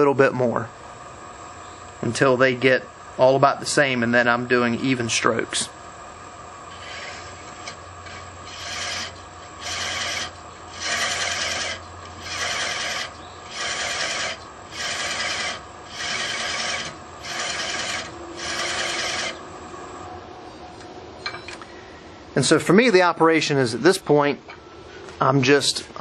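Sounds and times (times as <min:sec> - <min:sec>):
low lathe hum: 0:05.7 - 0:21.5
rasping wood thread cutting: 0:06.7 - 0:19.4.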